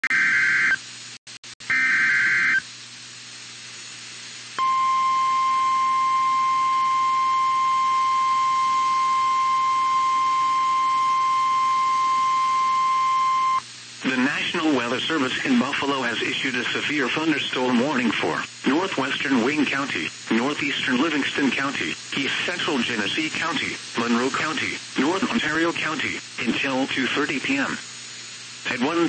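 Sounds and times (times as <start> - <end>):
steady warning alarm tone: 0.1 - 0.8, 1.7 - 2.7, 4.6 - 13.6.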